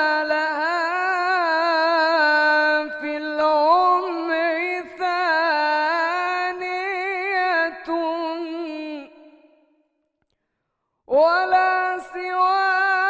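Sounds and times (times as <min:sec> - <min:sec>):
man singing unaccompanied: 0:11.1 - 0:13.0.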